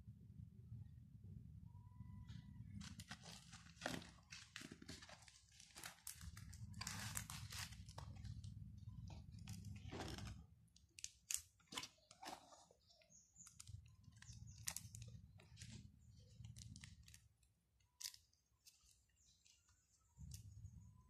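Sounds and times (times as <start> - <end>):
paper card handled: 2.6 - 10.4
cardboard box crinkling: 2.8 - 8.5.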